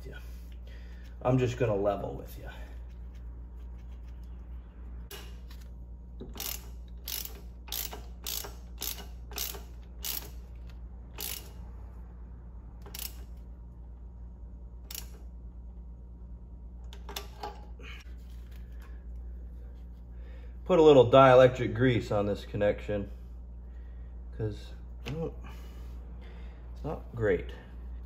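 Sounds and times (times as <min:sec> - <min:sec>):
socket ratchet clicking: 0:06.2 - 0:11.6, 0:12.8 - 0:13.4, 0:14.8 - 0:15.2.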